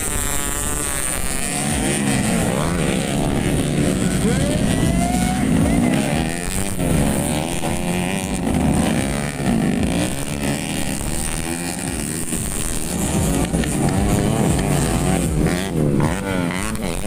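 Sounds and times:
motorcycles revving past: 0.0s - 17.0s.

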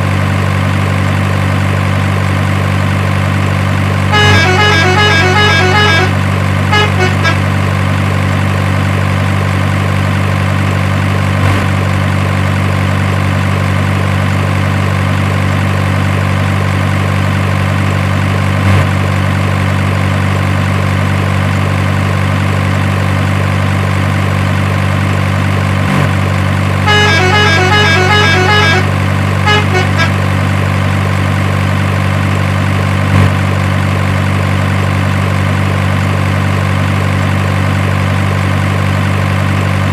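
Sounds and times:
truck engine running: 0.0s - 39.9s
truck horn toots: 4.1s - 7.6s, 26.8s - 30.5s.

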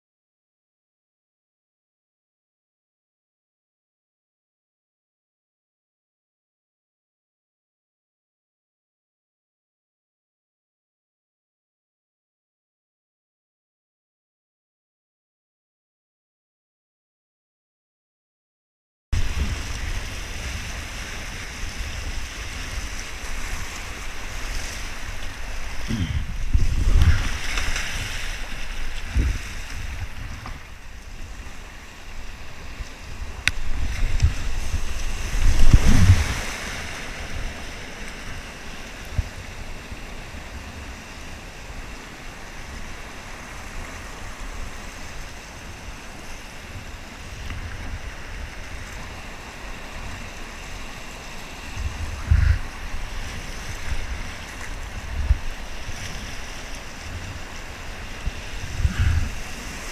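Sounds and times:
water splashing on microphone: 19.2s - 39.4s, 50.0s - 59.9s
whitewater rapids rushing: 19.2s - 59.9s.

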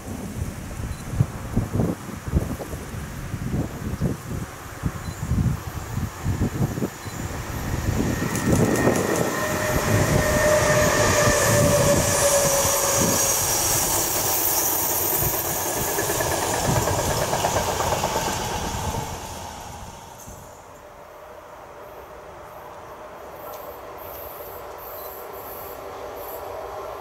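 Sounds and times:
train passing: 0.0s - 27.0s
wheels clattering over rails: 13.8s - 19.1s.

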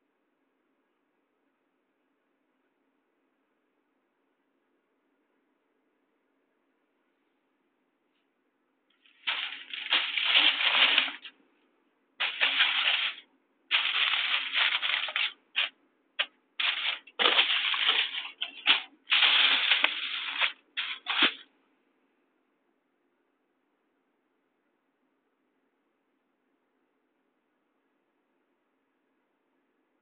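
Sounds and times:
meter speaker crackling and buzzing: 9.0s - 11.3s, 12.2s - 21.4s.

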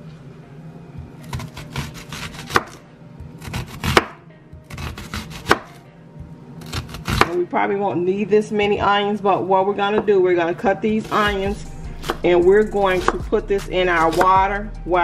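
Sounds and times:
knife slicing onion on cutting board: 1.2s - 2.8s, 3.4s - 5.8s, 6.6s - 7.4s, 11.0s - 14.4s.

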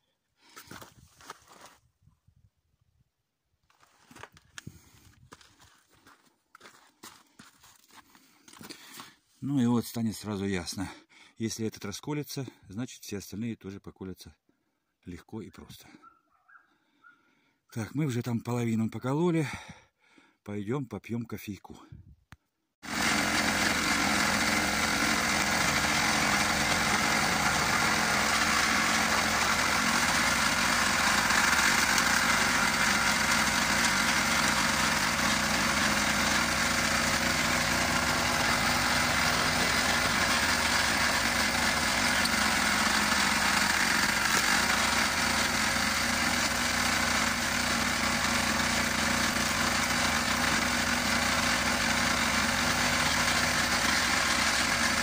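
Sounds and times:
tractor engine running: 22.8s - 55.0s.

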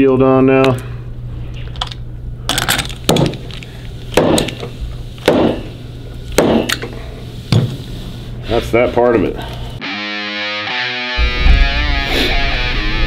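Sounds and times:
sharp metallic knocks: 5.3s - 5.7s, 6.4s - 6.7s.

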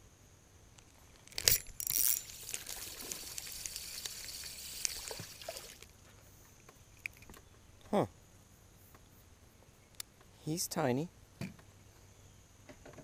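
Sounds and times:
reel whirring with ticks: 1.2s - 5.9s
fishing line swishing out: 1.4s - 5.9s.

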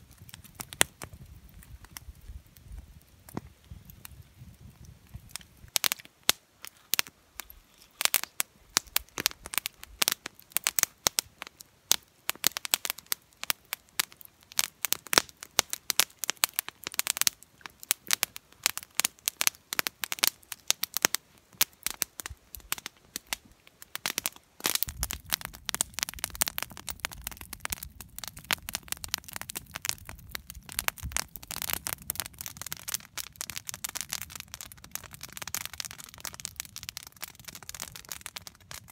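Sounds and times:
campfire crackling and popping: 0.0s - 38.9s.

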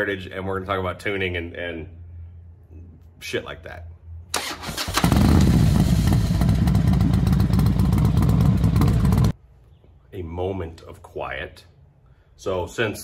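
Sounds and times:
motorcycle engine running: 5.0s - 9.4s.

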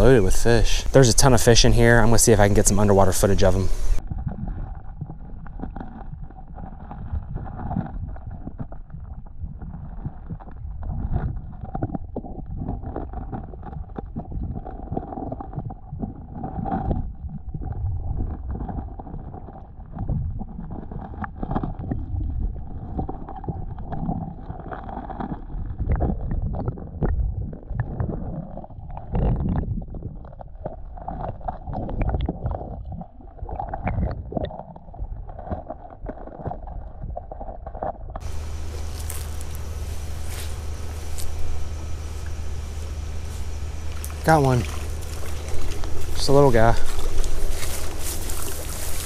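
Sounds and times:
underwater rumble of flowing water: 0.0s - 49.0s
low underwater thumps: 38.2s - 49.0s.

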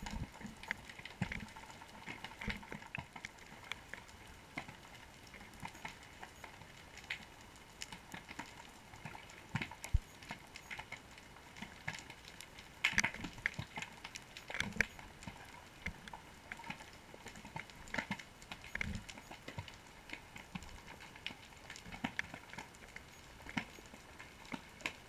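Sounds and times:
clicks and pops: 12.8s - 20.8s.

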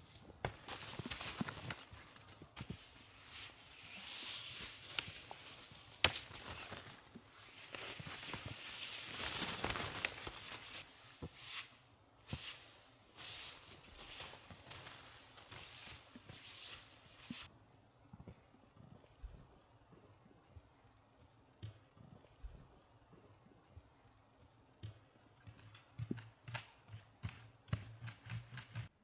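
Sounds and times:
snow swept off tent fabric: 2.6s - 6.0s, 7.2s - 17.5s.

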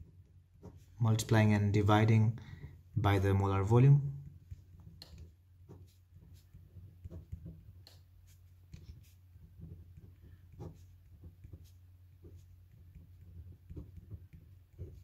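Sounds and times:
pen scratching on paper: 0.0s - 1.0s, 4.2s - 15.0s.

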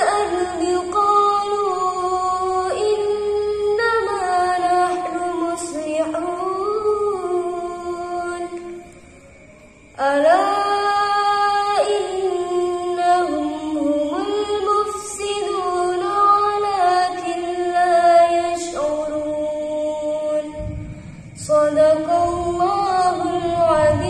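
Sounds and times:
woman reciting melodically: 0.0s - 9.0s, 9.9s - 24.0s.

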